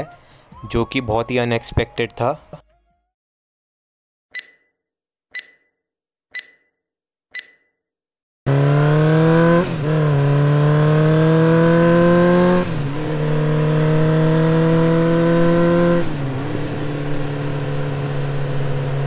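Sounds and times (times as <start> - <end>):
motorcycle engine accelerating: 8.5 - 19.0.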